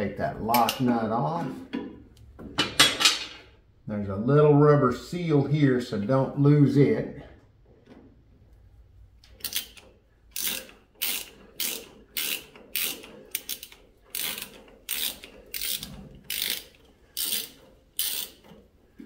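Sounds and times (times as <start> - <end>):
socket ratchet clicking: 9.4 - 18.6.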